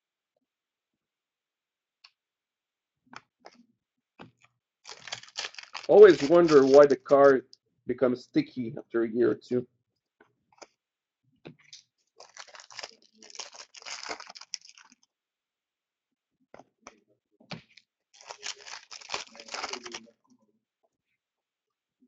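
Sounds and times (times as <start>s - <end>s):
wrappers tearing and crinkling: 4.8s - 7.4s, 12.2s - 15.0s, 17.7s - 20.1s.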